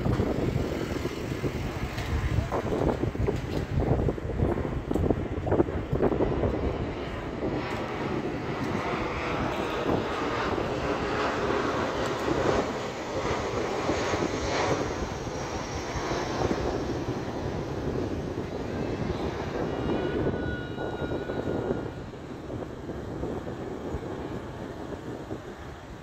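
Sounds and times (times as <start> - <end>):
jet engines roaring overhead: 0.0 - 26.0.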